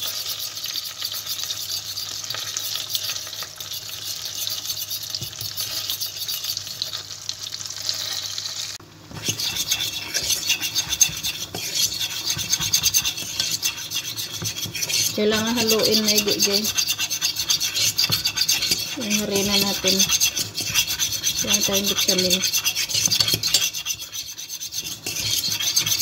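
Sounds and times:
fork scraping pot bottom: 0.0s - 6.8s, 9.1s - 26.0s
butter sizzling in a pot: 0.0s - 26.0s.

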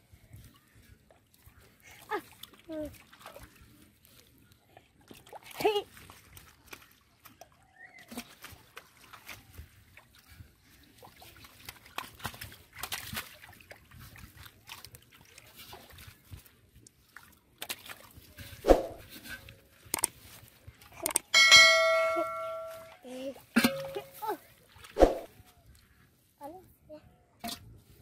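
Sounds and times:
fish splashing in shallow water: 1.5s - 23.0s.

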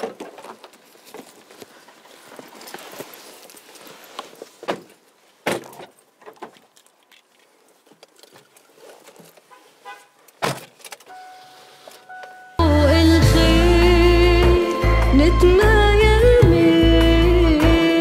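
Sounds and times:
rustling: 0.0s - 12.5s
music: 12.6s - 18.0s.

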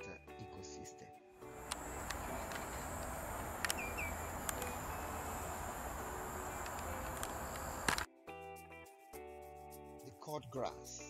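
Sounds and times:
faint clicks: 1.4s - 8.1s
high insect drone: 1.4s - 8.1s.

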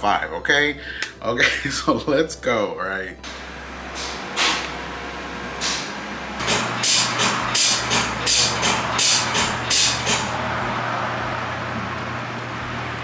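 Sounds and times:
steady low hum: 0.0s - 13.0s
short hissing bursts: 6.5s - 10.3s.

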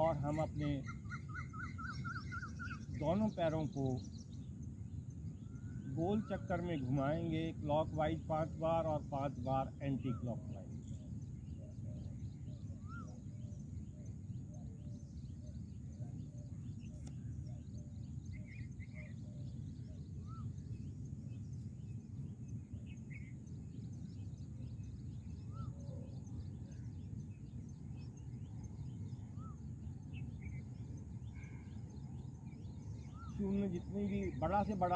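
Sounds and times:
small bird chirps: 0.0s - 7.9s, 10.0s - 34.9s
steady low rumble: 2.2s - 34.9s
rising-and-falling bird call: 12.7s - 13.3s, 33.0s - 34.4s.

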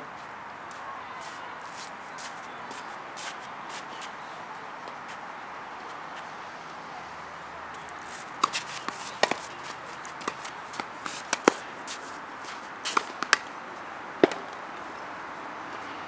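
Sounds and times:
tennis ball pops: 8.4s - 9.5s, 10.1s - 11.6s, 12.9s - 13.5s, 14.2s - 14.6s.

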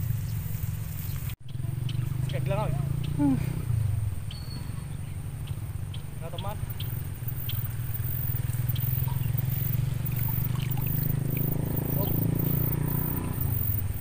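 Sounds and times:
high pulsing buzz: 0.0s - 14.0s
motor running at low pitch: 0.0s - 14.0s
faint short chirps: 4.3s - 5.0s.

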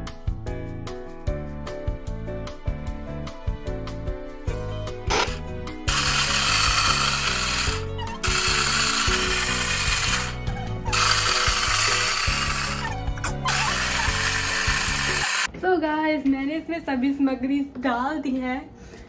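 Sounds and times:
background music: 0.0s - 15.5s
electric food chopper whirring: 5.1s - 15.5s.

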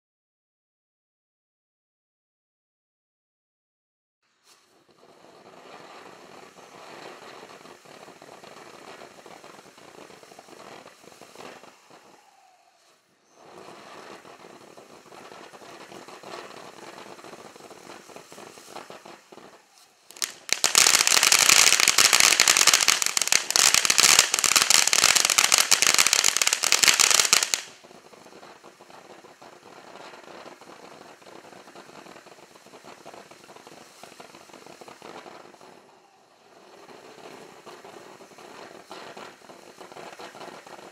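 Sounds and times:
firework crackling: 4.4s - 40.9s
firework fountain fizzing: 4.4s - 40.9s.

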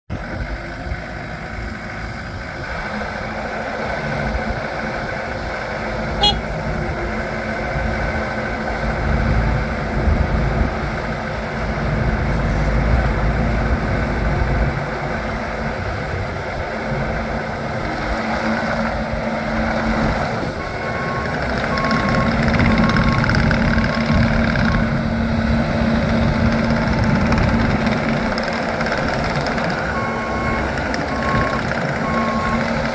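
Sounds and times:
diesel engine running under load: 0.1s - 32.9s
backup alarm beeping: 20.6s - 23.4s.

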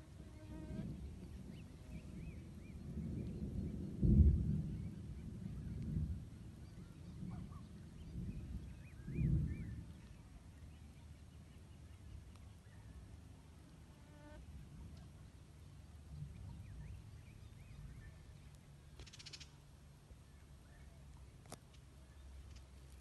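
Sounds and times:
insect buzz: 0.0s - 0.9s.

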